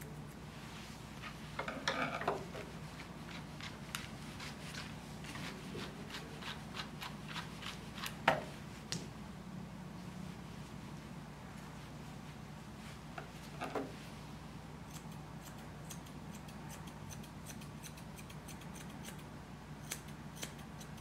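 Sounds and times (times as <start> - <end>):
grooming scissors snipping fur: 14.8 - 21.0.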